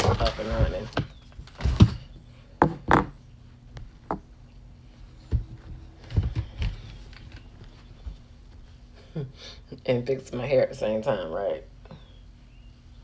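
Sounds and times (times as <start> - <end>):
faint steady hum: 0.0 - 13.0
objects knocking on a desk: 2.6 - 3.2.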